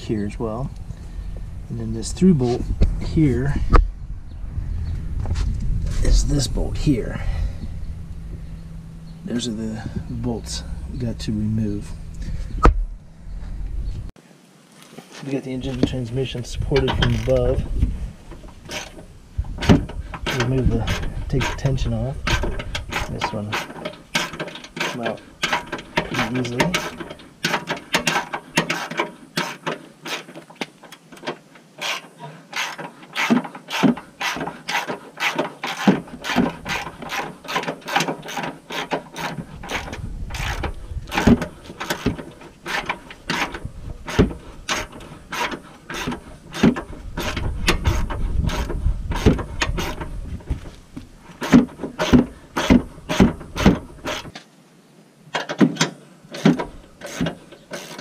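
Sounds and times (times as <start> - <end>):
low rumble: 0.0 - 14.2.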